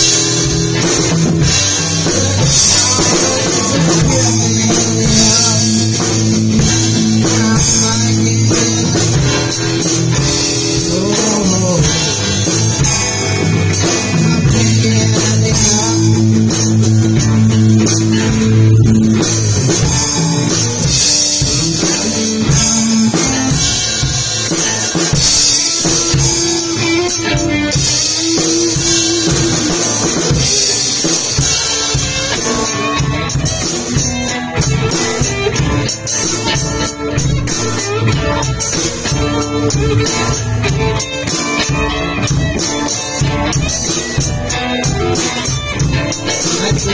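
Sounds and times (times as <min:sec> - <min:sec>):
drum kit: 0:00.0 - 0:46.9
electric guitars: 0:00.0 - 0:46.9.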